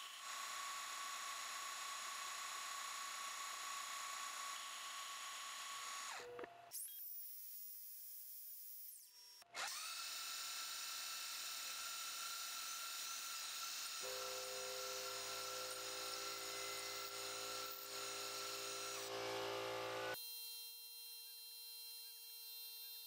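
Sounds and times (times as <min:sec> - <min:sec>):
drill bit boring into metal: 0:09.6 - 0:20.2
mill spindle whining: 0:14.0 - 0:20.2.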